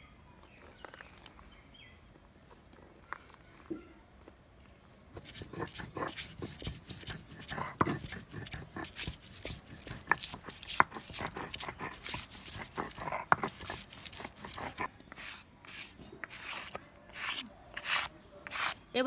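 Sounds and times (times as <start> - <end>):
stone roller grinding on stone slab: 5.2 - 18.8.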